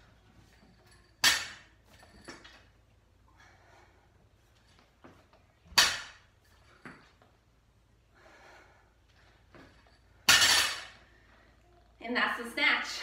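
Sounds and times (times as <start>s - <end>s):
barbell dropped on floor: 5.7s - 6.2s, 9.6s - 11.0s.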